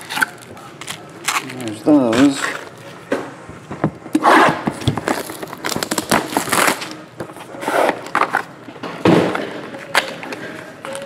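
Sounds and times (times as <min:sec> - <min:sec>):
packs rustling and crinkling: 0:00.0 - 0:02.9.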